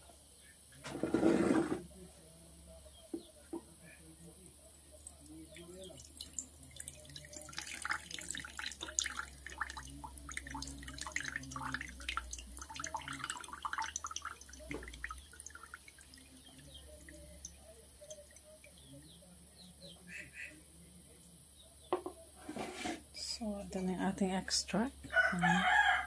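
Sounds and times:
juice pouring into a mug: 4.8 - 19.1.

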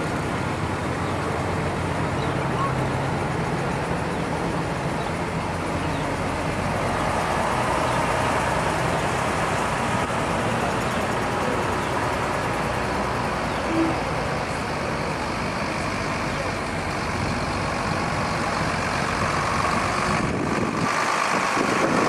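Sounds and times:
diesel engines of trucks passing: 0.0 - 22.0
tyre and road noise: 0.0 - 22.0
brief single tone: 13.7 - 14.0.

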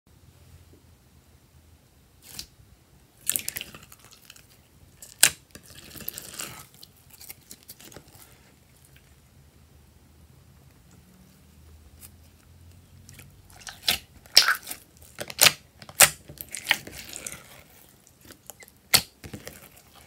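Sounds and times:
slime popping and crackling: 3.2 - 9.0, 13.1 - 20.0.

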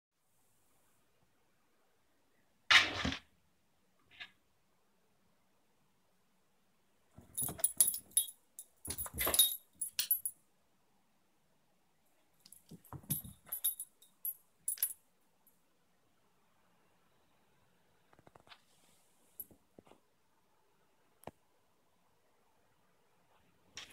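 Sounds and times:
dog collar tags jingling: 7.2 - 10.3, 12.5 - 15.0.

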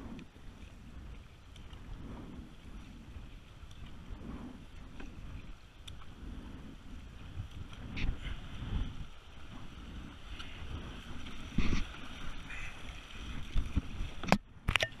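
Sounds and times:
wind buffeting microphone: 0.0 - 15.0
water slapping against hull: 0.2 - 14.9
paddle splashing in water: 7.5 - 14.4.

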